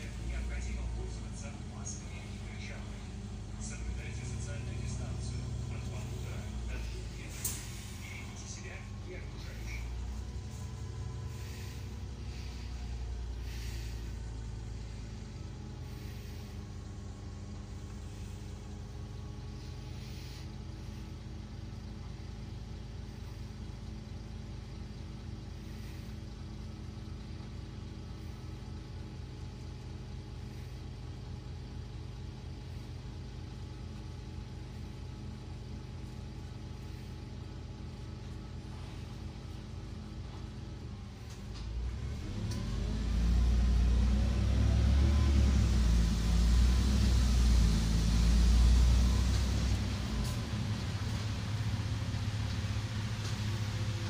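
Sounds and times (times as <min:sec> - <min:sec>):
bus engine hum: 0:00.0 - 0:54.0
road rumble: 0:00.0 - 0:54.0
short hisses: 0:05.1 - 0:21.3.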